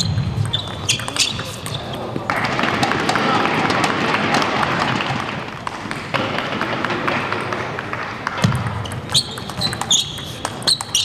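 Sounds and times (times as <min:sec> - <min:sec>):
murmur of spectator chatter: 0:00.0 - 0:06.1
table tennis ball clicking: 0:06.6 - 0:11.0.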